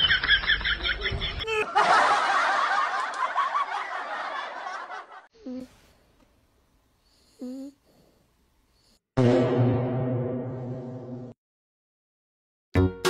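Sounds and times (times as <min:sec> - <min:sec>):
people laughing: 0:00.0 - 0:05.3.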